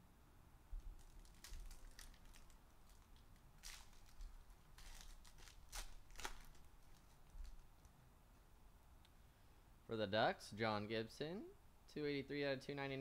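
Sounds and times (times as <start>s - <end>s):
foil wrapper tearing and crinkling: 0.9s - 7.9s.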